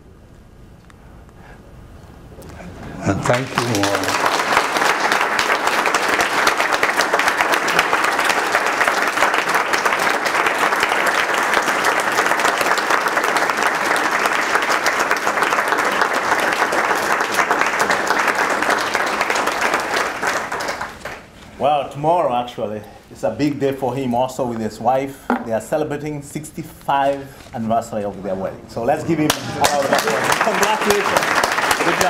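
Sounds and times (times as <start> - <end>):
audience applauding: 3.0 - 21.3, 29.2 - 32.0.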